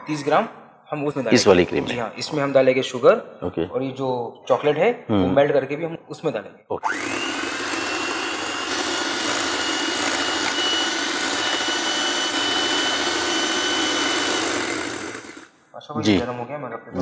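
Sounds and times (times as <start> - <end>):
electric hand mixer whining: 6.8 - 15.6.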